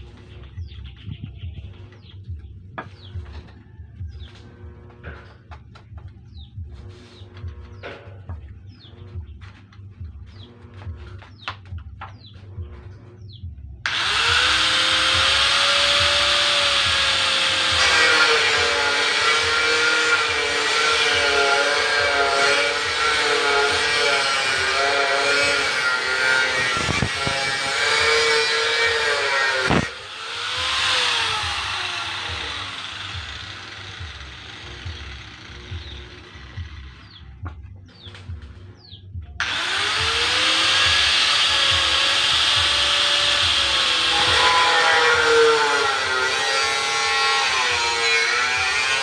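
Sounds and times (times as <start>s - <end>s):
birds chirping: 0.0s - 13.9s, 30.5s - 39.4s
angle grinder whining: 13.8s - 38.8s, 39.4s - 49.0s.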